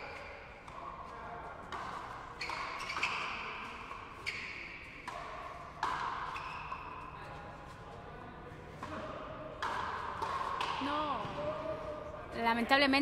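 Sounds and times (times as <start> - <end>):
rubber ball hitting rackets and wall: 1.7 - 7.0, 8.8 - 11.6.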